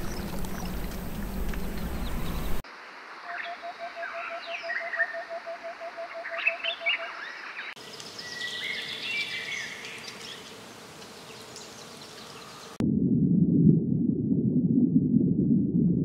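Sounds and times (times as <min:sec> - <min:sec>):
birds chirping: 0:00.0 - 0:02.6, 0:03.2 - 0:12.8.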